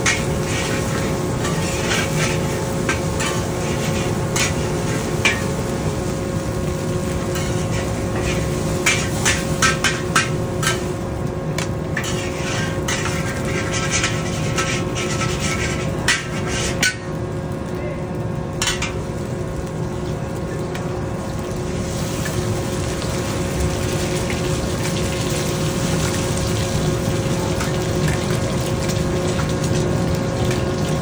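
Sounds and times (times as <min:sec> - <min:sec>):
spatula scraping and clanking wok: 0:00.0 - 0:05.8, 0:07.2 - 0:11.0, 0:11.9 - 0:17.1
steady roar with hum: 0:00.0 - 0:31.0.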